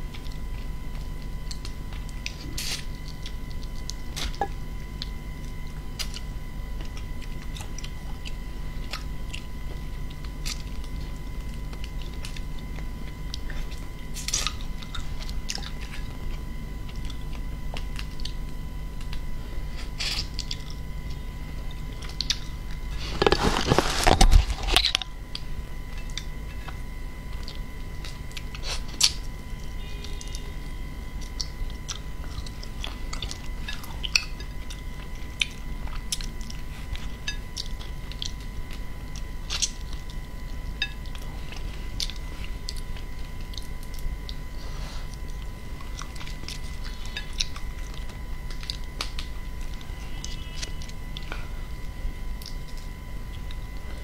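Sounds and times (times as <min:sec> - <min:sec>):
chewing and crunching shrimp: 0:00.0 - 0:54.0
faint hum and high tone: 0:00.0 - 0:54.0.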